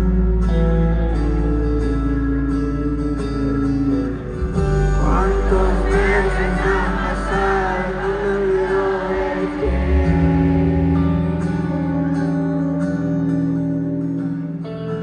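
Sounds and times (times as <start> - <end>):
live band playing: 0.0 - 14.4
crowd screaming and cheering: 4.1 - 13.1.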